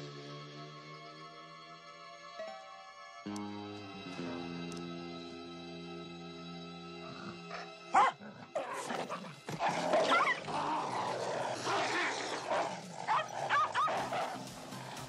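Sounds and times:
dog yelping: 0:08.0 - 0:08.2, 0:11.7 - 0:14.3.

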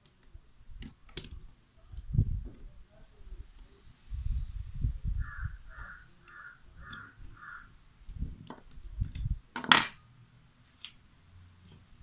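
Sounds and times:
bird calling harshly: 0:05.2 - 0:07.8.

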